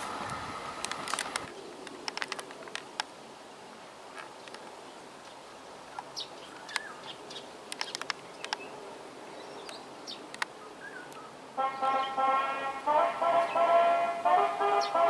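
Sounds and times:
faint outdoor background noise: 0.0 - 15.0
birds chirping: 4.3 - 15.0.

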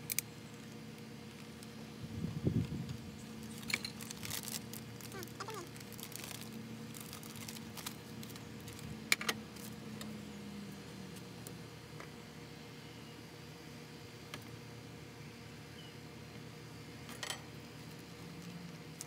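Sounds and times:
low steady hum: 0.0 - 19.0
plastic zip bag rustling: 3.5 - 8.9.

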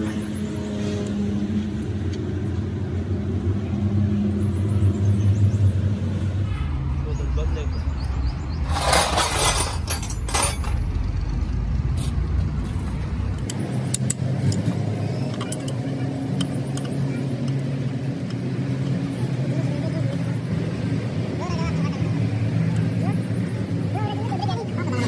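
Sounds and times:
low engine-like drone: 0.0 - 25.0
metal tools clinking: 8.7 - 10.9, 13.4 - 17.6.

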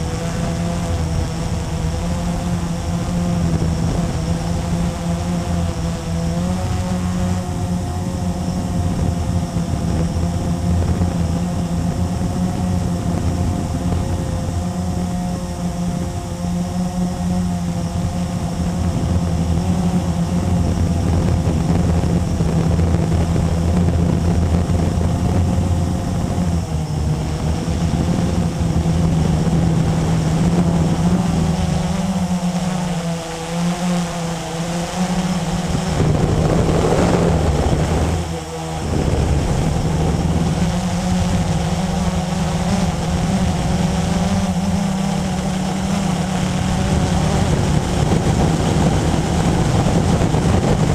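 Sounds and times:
quadcopter motors humming: 0.0 - 50.9.

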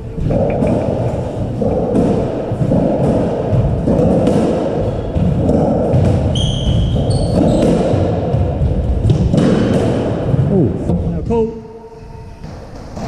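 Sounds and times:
squash ball hitting walls: 0.0 - 10.7, 12.4 - 13.0
shoes squeaking on floor: 6.2 - 7.9.

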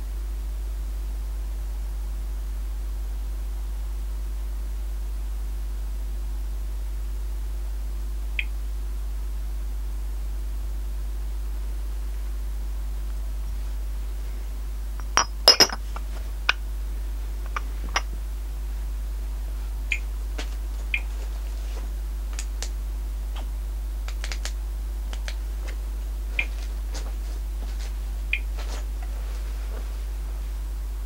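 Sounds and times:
steady low hum: 0.0 - 31.0
glass dish clinking: 15.0 - 15.8
radiation meter clicks: 19.9 - 20.1, 24.1 - 25.4.

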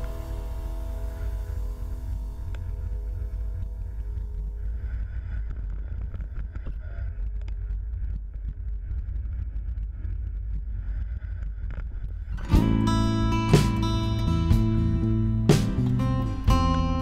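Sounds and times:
wind buffeting microphone: 0.0 - 13.1.

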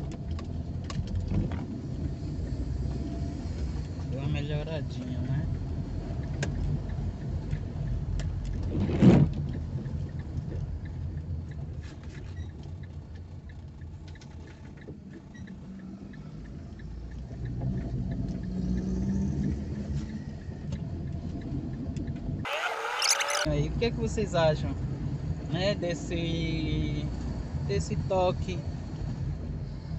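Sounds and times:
car engine and road rumble: 0.0 - 29.9.

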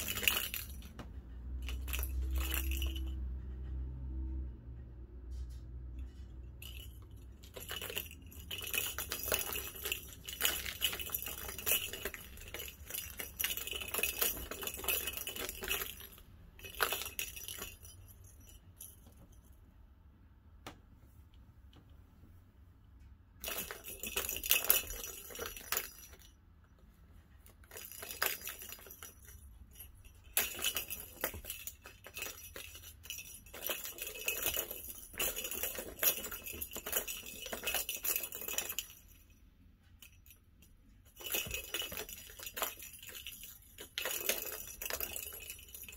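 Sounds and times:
plastic ball rattling around tracks: 0.0 - 3.3, 6.6 - 18.9, 23.4 - 26.4, 27.4 - 39.3, 40.0 - 45.9.

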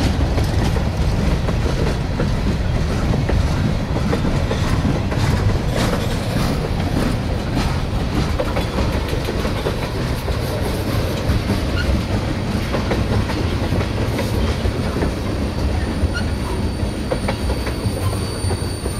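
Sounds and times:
train wheels rumbling on rails: 0.0 - 18.9.

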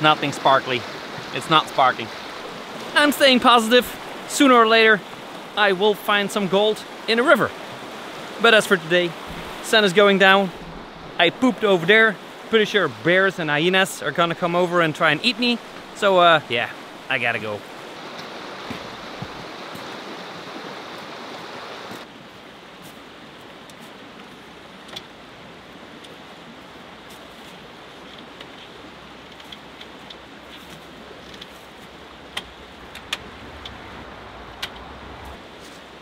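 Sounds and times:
stream rushing: 0.0 - 36.0.

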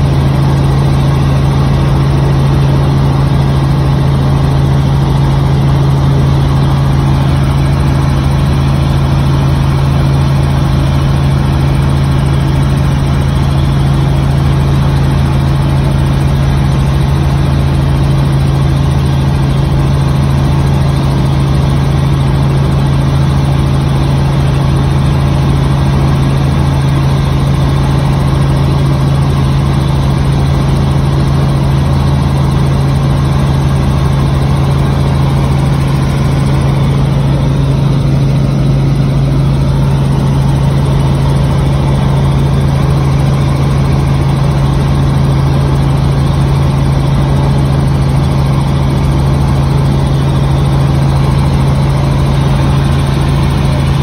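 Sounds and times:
helicopter engine and rotors drone: 0.0 - 54.0.

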